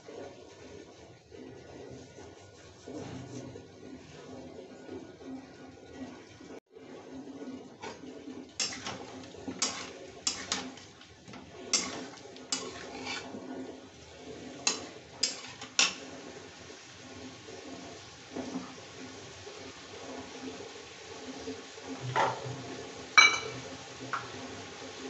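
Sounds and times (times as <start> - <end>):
chicken sizzling in hot oil: 7.8 - 25.0
metal spatula clanking on pan: 8.6 - 13.3, 14.6 - 16.1.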